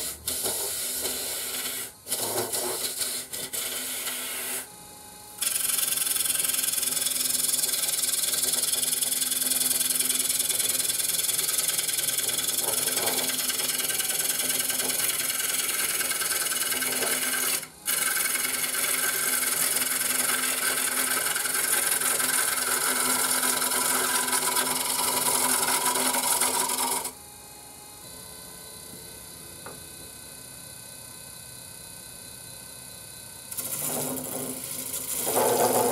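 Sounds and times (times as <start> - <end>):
lathe motor hum: 3.7 - 29.6, 33.5 - 35.9
gouge rasping wood on lathe: 5.4 - 27.1, 33.5 - 35.9.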